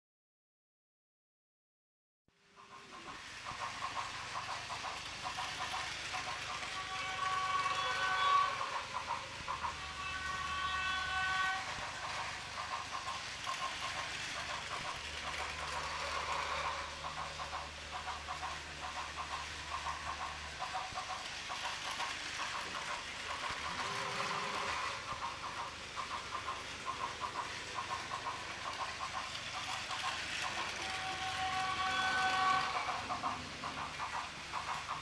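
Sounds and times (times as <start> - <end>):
toy train wheels clattering: 2.5 - 35.0.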